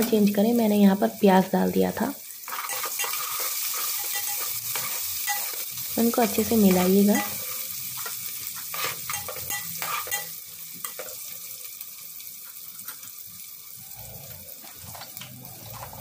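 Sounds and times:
onions sizzling in oil: 0.0 - 16.0
spoon scraping a metal pot: 2.5 - 5.6, 8.6 - 10.3.

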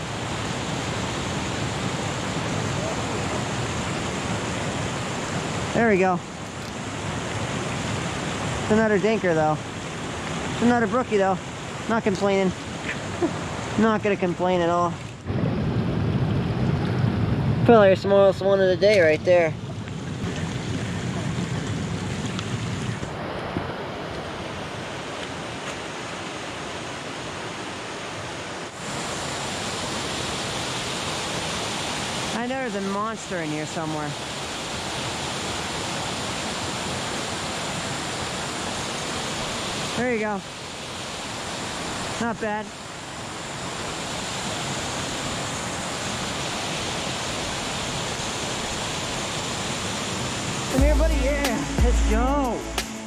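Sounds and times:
waterfall cascading into pool: 0.0 - 15.4, 18.9 - 52.6
mountain stream rushing: 0.0 - 53.0.

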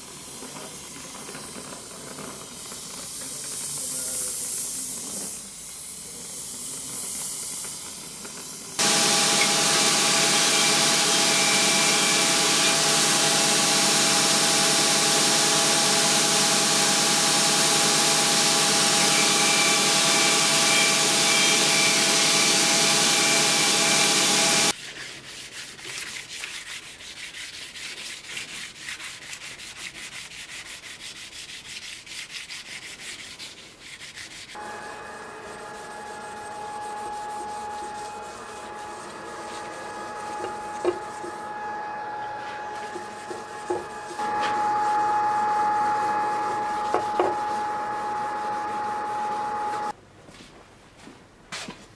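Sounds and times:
belt grinder whining: 8.8 - 24.7, 34.6 - 49.9
hand rubbing along blade: 18.8 - 49.9.

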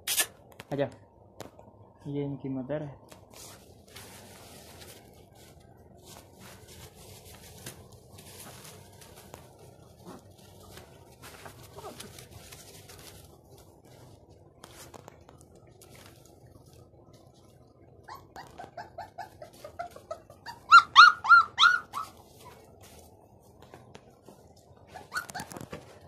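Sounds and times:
puppies whimpering: 18.0 - 22.1
puppy high yelps: 18.0 - 22.2, 24.9 - 25.6.

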